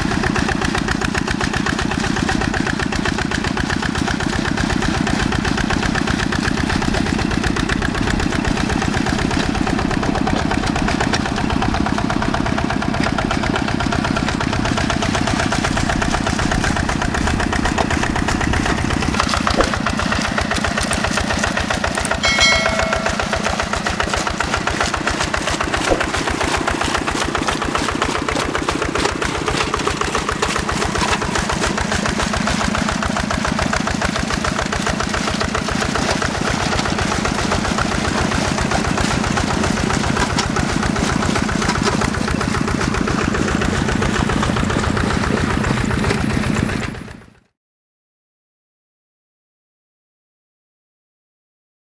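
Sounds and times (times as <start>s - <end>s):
diesel engine running: 0.0s - 47.5s
brief high-pitched tone: 22.2s - 23.5s.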